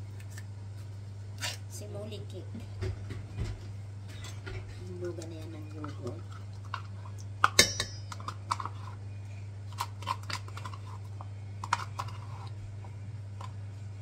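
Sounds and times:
steady low hum: 0:00.0 - 0:14.0
spoon scraping and tapping: 0:09.8 - 0:12.6.

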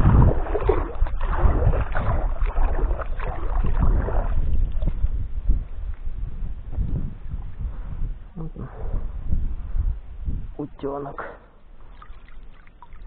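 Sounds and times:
paddle splashing water: 0:00.0 - 0:06.1, 0:11.8 - 0:13.0
wind rumble on microphone: 0:00.0 - 0:11.0.

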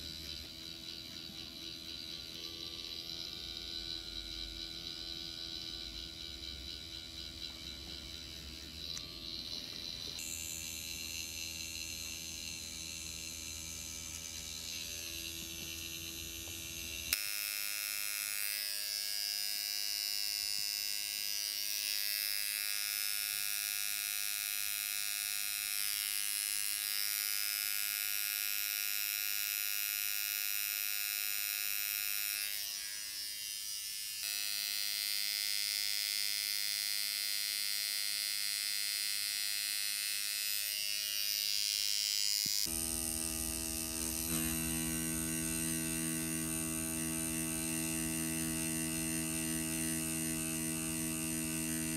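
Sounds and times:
tattoo machine humming: 0:00.0 - 0:51.9.

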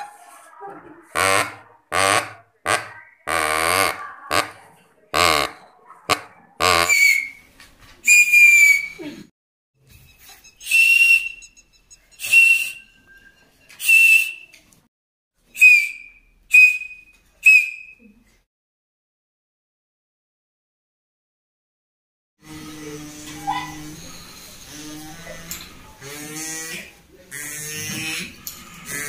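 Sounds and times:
buzzy reed-like honks: 0:01.1 - 0:07.1, 0:22.4 - 0:29.0
short breathy whistle blasts: 0:10.6 - 0:11.5, 0:12.2 - 0:13.1, 0:13.8 - 0:14.5, 0:15.6 - 0:18.0.

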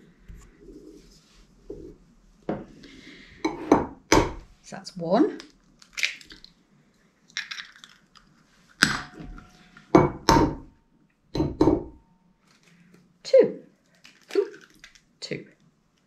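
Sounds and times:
eggshell cracking open: 0:05.4 - 0:06.6, 0:07.2 - 0:09.2, 0:13.9 - 0:15.2.

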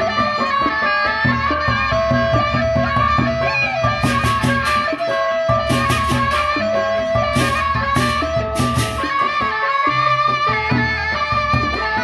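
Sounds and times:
barrel drums beating: 0:00.0 - 0:09.8
rapid cymbal clashes: 0:02.4 - 0:09.4.

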